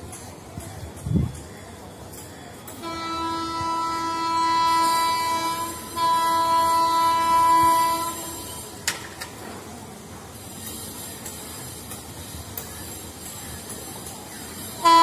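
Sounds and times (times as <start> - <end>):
locomotive horn blasts: 2.8 - 8.7, 14.8 - 15.0.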